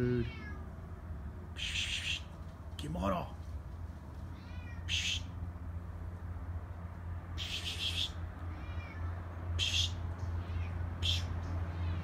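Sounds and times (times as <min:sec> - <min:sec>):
cat meowing: 0:04.3 - 0:05.3, 0:07.4 - 0:12.0.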